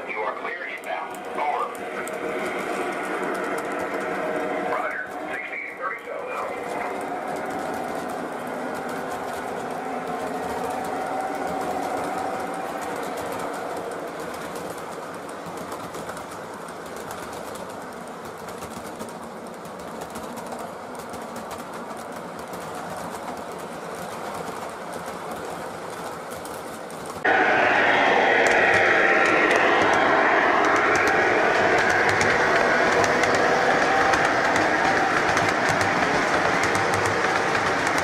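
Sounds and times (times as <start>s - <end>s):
model train wheels rumbling: 0.0s - 38.0s
rapid light clicking: 28.4s - 38.0s.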